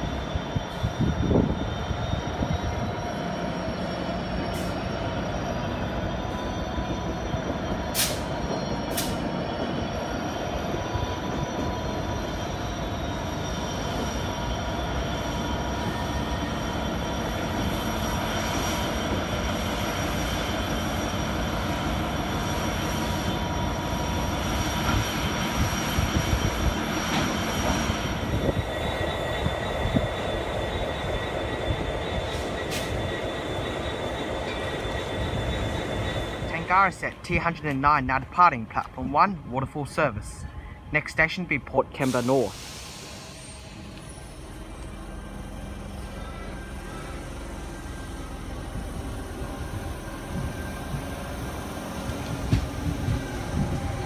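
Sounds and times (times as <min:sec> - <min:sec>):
high-pitched wheel squeal: 0:00.0 - 0:36.9
diesel locomotive engines rumbling: 0:00.0 - 0:54.0.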